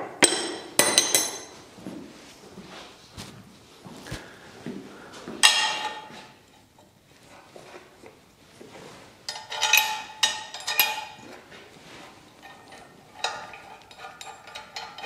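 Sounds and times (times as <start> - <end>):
steel parts clinking: 9.3 - 11.3.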